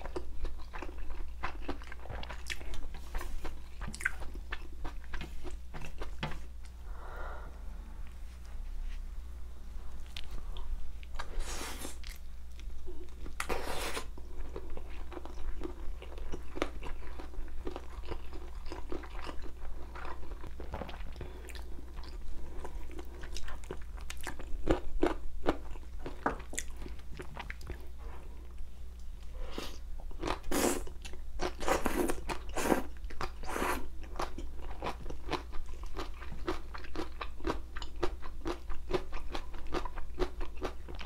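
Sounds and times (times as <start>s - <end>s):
chewing and crunching bones: 0.0s - 6.2s, 14.4s - 27.9s, 32.2s - 41.0s
steady low hum: 0.0s - 41.0s.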